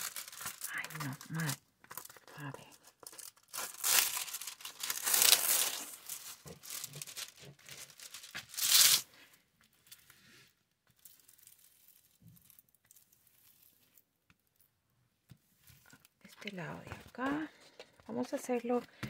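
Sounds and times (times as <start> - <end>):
plastic film crinkling: 0.0 - 10.1, 10.8 - 14.6
faint handling sounds: 0.0 - 19.0.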